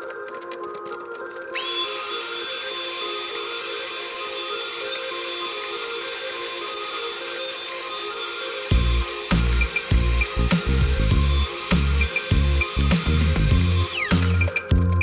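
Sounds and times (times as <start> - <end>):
background music: 0.0 - 15.0
shop vacuum running: 1.5 - 15.0.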